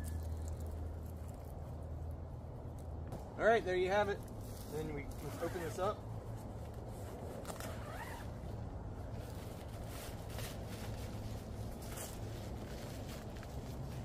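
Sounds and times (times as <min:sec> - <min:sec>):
steady low rumble: 0:00.0 - 0:05.2
tent fabric rustling: 0:04.4 - 0:14.0
zipper drawn open: 0:07.2 - 0:08.5.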